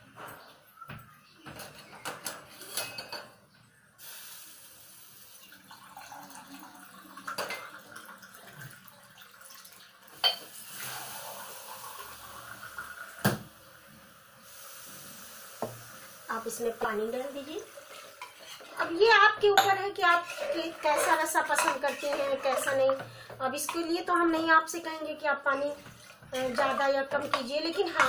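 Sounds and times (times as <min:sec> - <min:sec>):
metal utensils clinking: 0:01.5 - 0:03.4, 0:17.8 - 0:24.8, 0:26.3 - 0:28.0
steady hiss: 0:04.0 - 0:05.4, 0:10.3 - 0:17.5.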